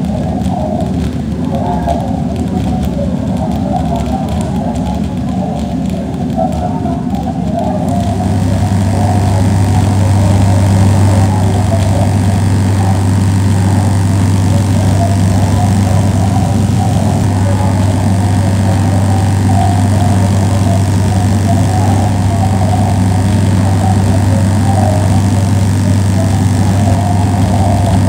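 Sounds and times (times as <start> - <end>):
loud low hum: 0.0 - 28.0.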